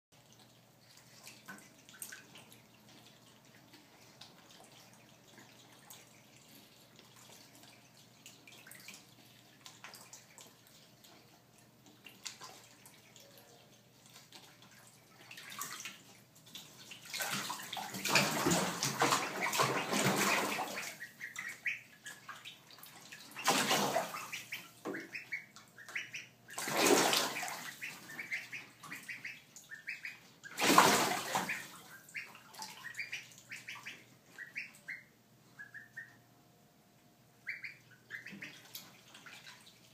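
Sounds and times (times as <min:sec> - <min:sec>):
water splashing: 0:00.2 - 0:35.0, 0:37.6 - 0:39.9
ducklings peeping: 0:16.8 - 0:36.3, 0:37.4 - 0:39.5.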